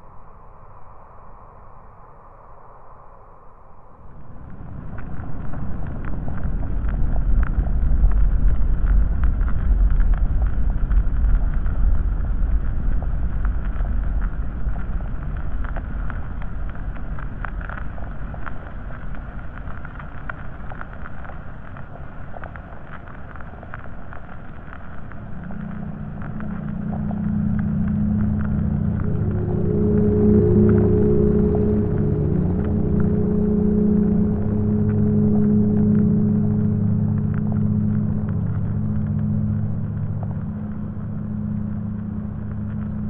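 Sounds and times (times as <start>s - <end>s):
faint crackles: 0.0s - 43.0s
deep low rumble: 2.8s - 43.0s.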